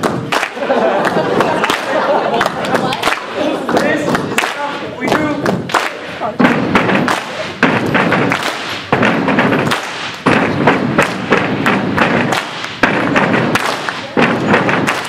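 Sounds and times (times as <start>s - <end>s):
hand claps and body slaps: 0.0s - 15.0s
stomps on stage floor: 6.4s - 15.0s.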